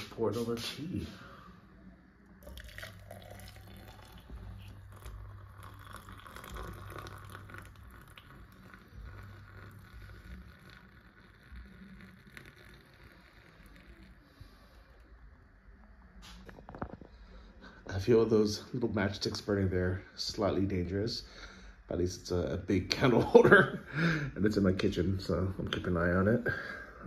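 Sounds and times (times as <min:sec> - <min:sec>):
water pouring into a glass jug: 0:02.4 - 0:15.0.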